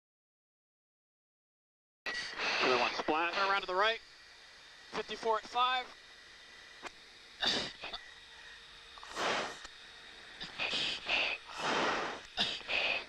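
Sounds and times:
heavy breathing over intercom: 2.1 - 3.0, 10.4 - 13.0.

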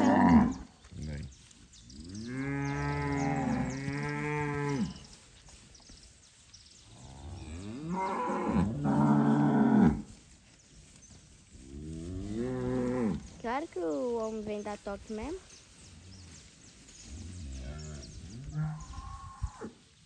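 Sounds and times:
cattle mooing: 0.0 - 0.6, 2.2 - 5.0, 7.0 - 10.1, 11.8 - 13.3.

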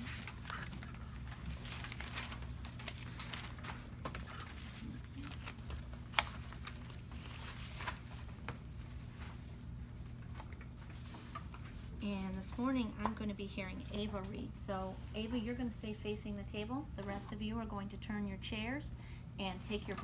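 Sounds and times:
paper rustling: 0.0 - 9.6.

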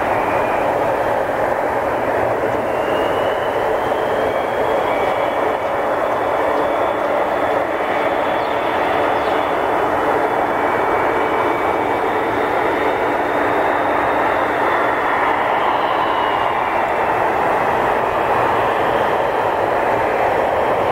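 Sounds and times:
high jet whine: 0.0 - 20.9
jet engine roar: 0.0 - 20.9.

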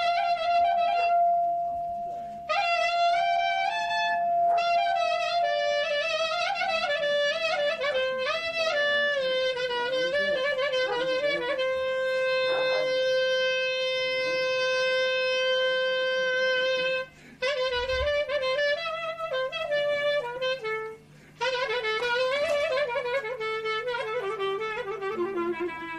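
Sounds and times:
solo clarinet playing: 0.0 - 25.9
clarinetist breath: 2.0 - 2.5, 17.1 - 17.5, 21.0 - 21.5.

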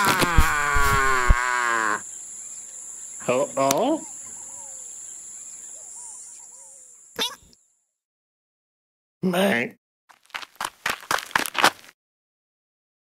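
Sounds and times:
cartoon gorilla wailing: 0.0 - 2.0
rising vocal squeaks: 0.0 - 2.0
crickets chirping: 0.0 - 7.8.

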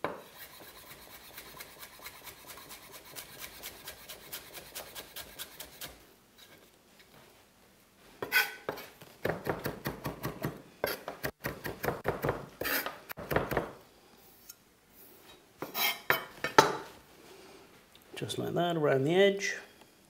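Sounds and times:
knife chopping on wooden board: 13.2 - 13.8.

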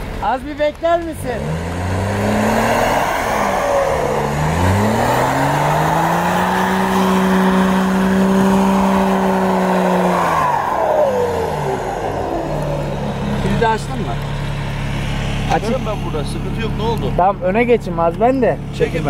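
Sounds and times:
tyres spinning in snow: 1.0 - 14.1
engine revving hard: 1.2 - 17.2.

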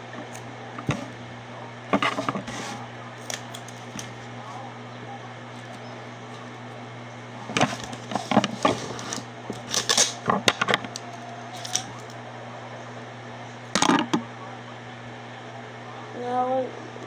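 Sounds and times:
steady low hum: 0.0 - 17.0
rustling and clattering on table: 0.8 - 1.1, 1.9 - 2.8, 7.4 - 11.0.

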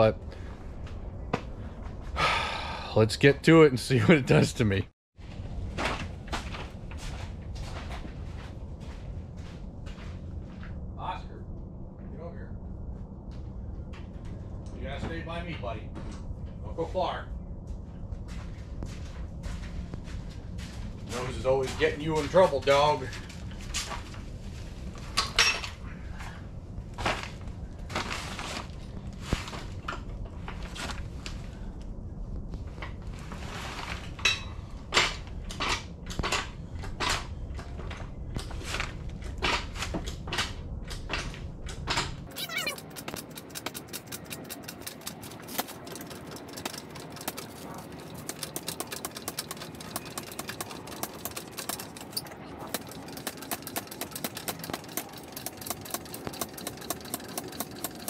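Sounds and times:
floor jack squeaking: 42.3 - 58.0.

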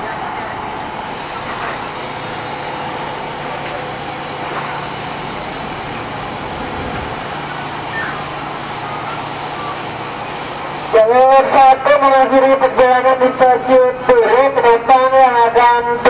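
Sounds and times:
electric train hum and rumble: 0.0 - 11.3.

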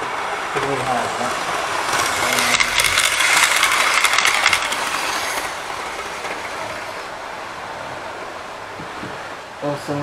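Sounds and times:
wheel clicks over rails: 0.0 - 7.2
model train whine: 0.0 - 8.7.

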